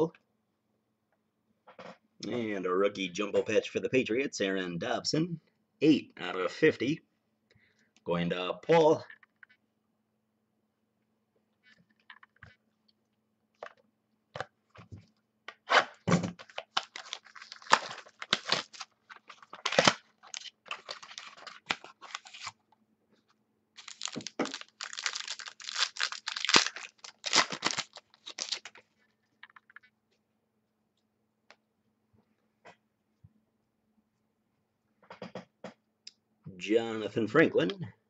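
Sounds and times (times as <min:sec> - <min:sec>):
cards clicking and rustling: 0:16.4 - 0:22.6
wrapper crinkling and tearing: 0:16.4 - 0:22.6, 0:23.8 - 0:28.9.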